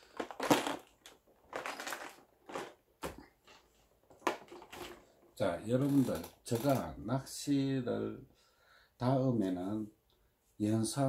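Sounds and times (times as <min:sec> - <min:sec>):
plastic box rattling: 0:00.0 - 0:06.9.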